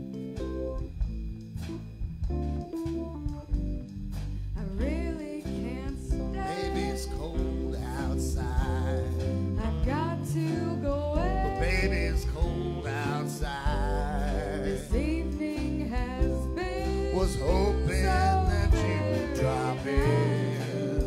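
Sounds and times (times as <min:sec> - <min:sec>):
live band playing: 0:00.0 - 0:21.0
woman singing with vibrato: 0:04.6 - 0:07.4, 0:09.6 - 0:13.3, 0:14.8 - 0:21.0.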